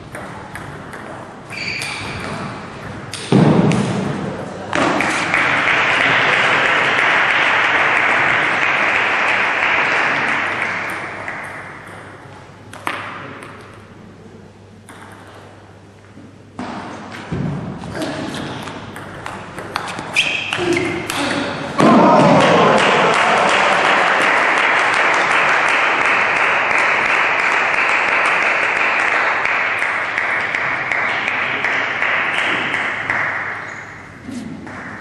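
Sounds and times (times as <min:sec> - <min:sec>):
ping pong ball hitting paddle and table: 0:00.0 - 0:07.0, 0:07.7 - 0:13.9, 0:14.8 - 0:15.7, 0:16.5 - 0:23.2, 0:23.8 - 0:35.0
spectators applauding: 0:05.0 - 0:10.9, 0:22.0 - 0:33.6
ball bouncing clicks: 0:10.6 - 0:13.8, 0:14.8 - 0:15.5, 0:18.6 - 0:21.2.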